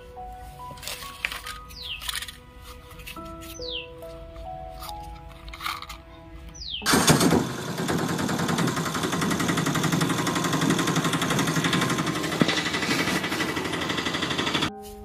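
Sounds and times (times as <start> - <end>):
toy rattling along ground: 0.8 - 3.7, 4.7 - 6.1.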